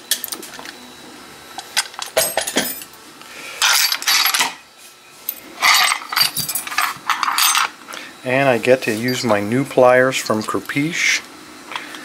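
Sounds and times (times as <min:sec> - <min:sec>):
keys clinking against metal: 0:05.3 - 0:07.7.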